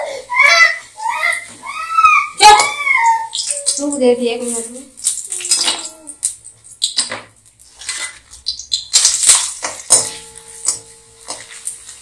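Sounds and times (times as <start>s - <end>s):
frying in hot oil sizzling: 3.3s - 12.0s
metal spoon scraping a pan: 7.7s - 12.0s
ringing metal clang: 9.9s - 11.8s.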